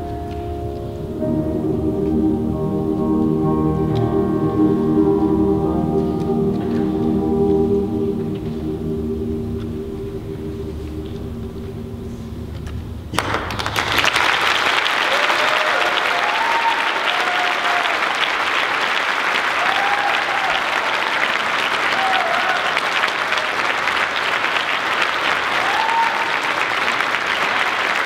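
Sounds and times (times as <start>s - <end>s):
audience applauding: 12.6s - 28.0s
cheering whoops: 15.0s - 18.2s, 19.4s - 23.6s, 25.4s - 26.8s.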